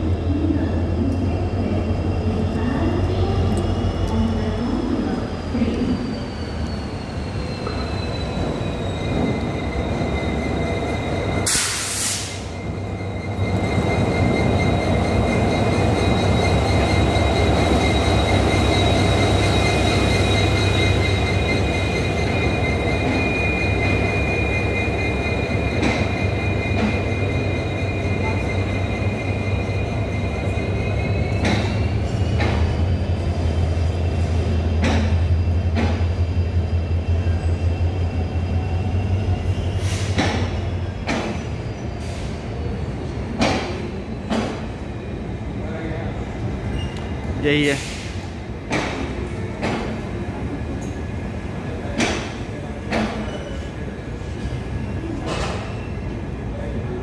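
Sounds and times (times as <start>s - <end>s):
high wheel squeal: 5.5s - 34.5s, 46.6s - 48.0s.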